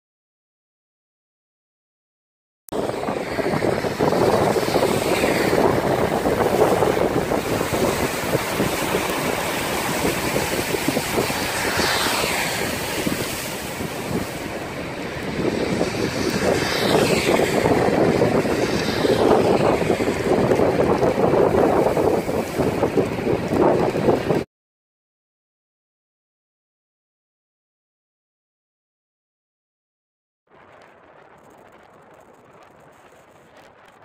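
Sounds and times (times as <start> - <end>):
wind: 2.7 - 24.5, 30.5 - 34.0
tyres on wet road: 2.8 - 24.4.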